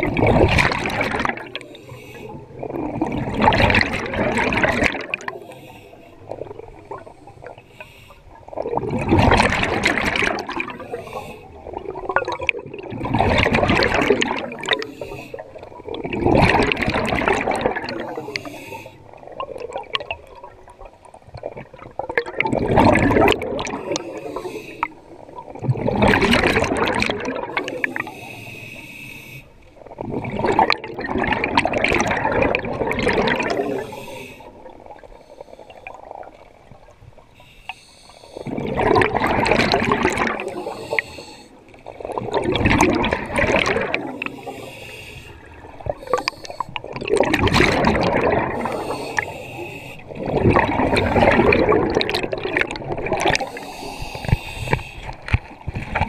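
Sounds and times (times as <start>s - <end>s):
exhaled bubbles underwater: 0.0s - 28.9s, 29.8s - 37.5s, 38.1s - 56.0s
regulator hissing inhalations: 5.4s - 6.2s, 7.7s - 8.3s, 14.8s - 15.4s, 18.0s - 19.0s, 23.9s - 25.0s, 27.6s - 29.5s, 33.7s - 36.0s, 37.4s - 38.5s, 40.5s - 41.6s, 44.2s - 46.8s, 48.6s - 50.1s, 53.4s - 55.2s.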